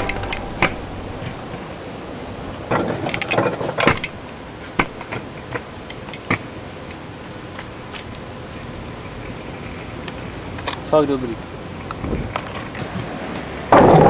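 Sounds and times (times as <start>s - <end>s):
kick scooter rolling on pavement: 2.6s - 14.0s
scooter wheels and deck rattling: 11.8s - 14.0s.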